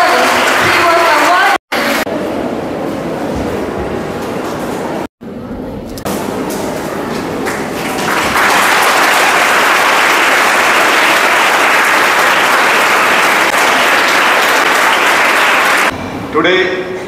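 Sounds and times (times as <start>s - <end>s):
audience applauding: 0.0s - 1.5s, 7.4s - 15.9s.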